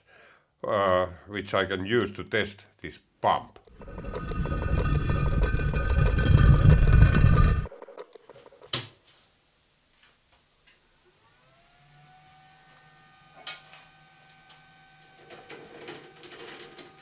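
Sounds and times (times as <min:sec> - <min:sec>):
electric motor hum and whine: 0:11.1 - 0:17.0.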